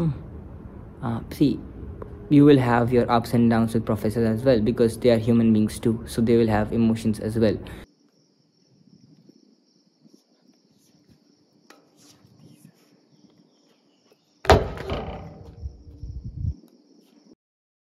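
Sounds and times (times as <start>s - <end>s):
crickets trilling: 0.0s - 17.4s
loud thud: 14.5s - 15.8s.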